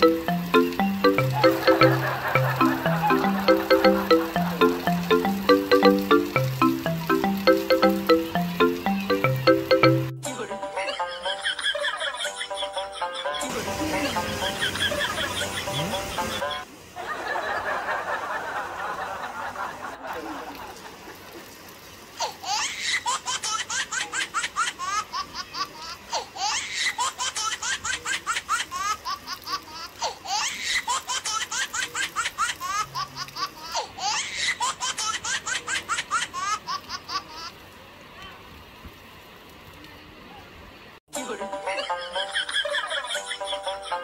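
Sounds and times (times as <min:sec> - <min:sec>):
high giggling laugh: 0:01.3 - 0:04.6, 0:10.8 - 0:21.4, 0:41.7 - 0:44.0.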